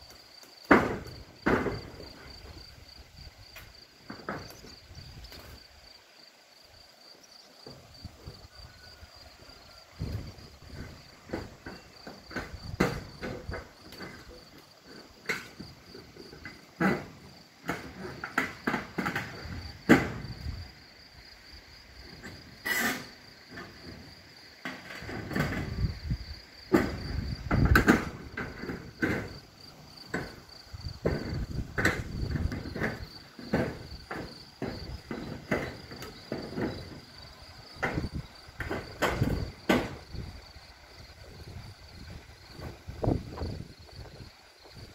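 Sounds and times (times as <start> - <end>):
crickets chirring: 0.0 - 44.9
wind buffeting microphone: 9.9 - 11.2, 25.4 - 28.4, 30.6 - 34.1, 36.7 - 44.9
sharp clicks and knocks: 26.7 - 29.4, 31.0 - 37.1.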